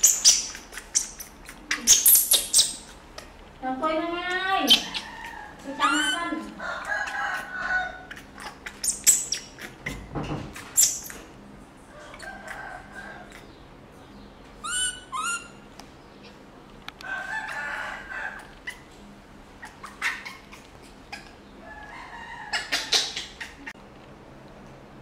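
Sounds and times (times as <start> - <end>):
baby monkey squeaking calls: 0.0 - 3.3, 4.6 - 6.4, 8.4 - 11.2, 14.6 - 15.6, 19.6 - 21.2, 22.6 - 23.6.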